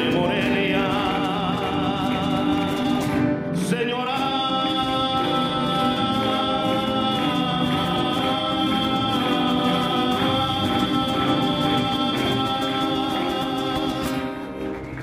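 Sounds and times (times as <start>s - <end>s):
live band with violins and guitar: 0.0s - 15.0s
man singing long note: 3.6s - 14.3s.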